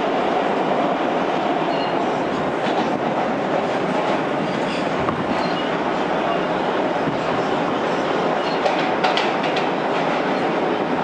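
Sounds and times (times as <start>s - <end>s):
subway train wheels rumbling: 0.0s - 11.0s
faint high squeals: 1.7s - 2.0s.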